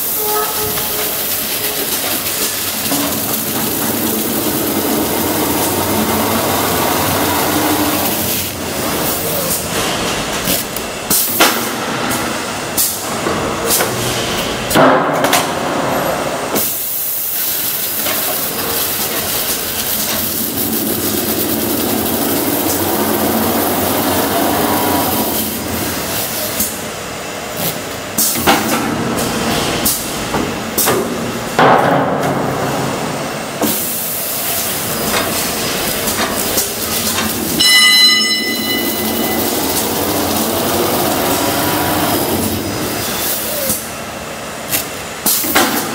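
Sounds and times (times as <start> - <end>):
spinning rollers whirring: 0.8 - 9.5, 17.8 - 26.1, 38.4 - 43.6.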